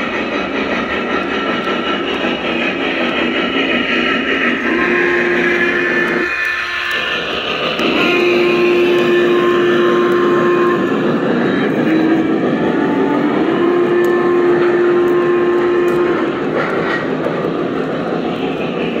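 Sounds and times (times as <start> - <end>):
model train wheels rumbling: 0.0 - 19.0.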